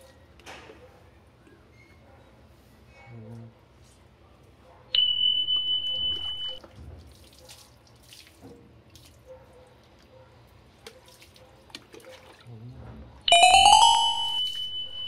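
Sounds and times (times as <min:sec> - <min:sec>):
water splashing and dripping: 0:06.6 - 0:10.0
high-pitched beep: 0:13.3 - 0:15.0.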